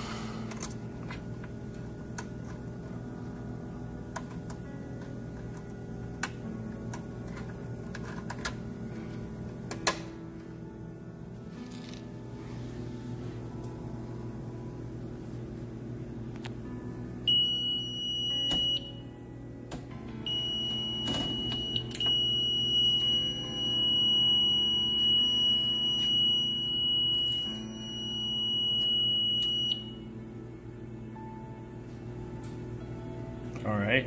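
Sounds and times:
alarm panel buzzer high tone: 17.3s - 19.1s, 20.3s - 30.1s.

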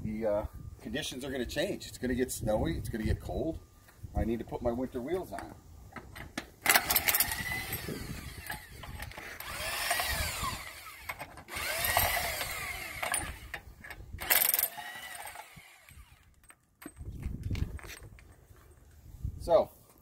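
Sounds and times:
impact wrench whirring: 6.7s - 16.4s.

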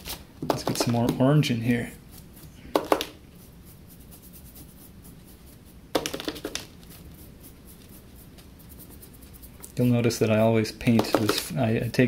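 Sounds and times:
paintbrush tapping plastic cap: 10.8s - 11.5s.

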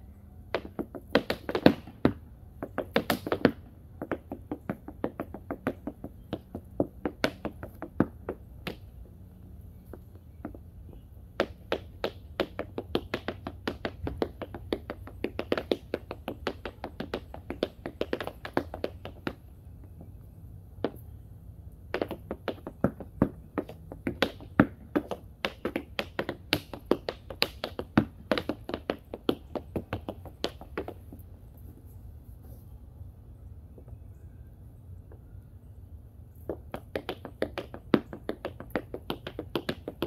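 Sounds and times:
tap shoes clicking on board: 0.5s - 8.9s, 9.9s - 20.1s, 21.9s - 31.2s, 36.4s - 40.0s.

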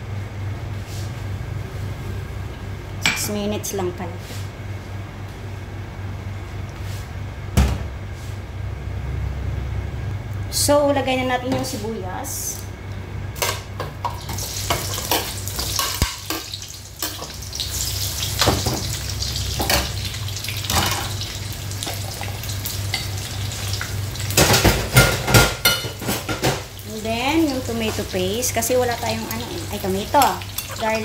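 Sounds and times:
onions sizzling in oil: 14.0s - 25.2s, 25.9s - 31.0s.

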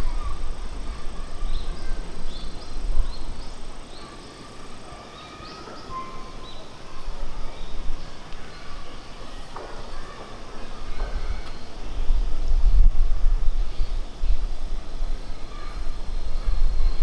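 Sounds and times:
small birds chirping: 0.0s - 12.2s.

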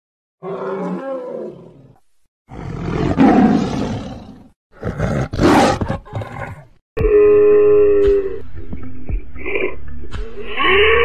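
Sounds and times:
big cat roaring: 0.4s - 6.6s
mammoth bellow and growling roar: 0.4s - 8.0s.

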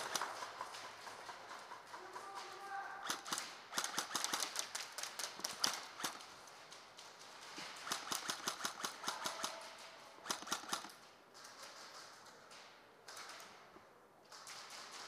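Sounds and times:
airsoft guns firing: 2.2s - 6.4s, 7.6s - 11.1s.

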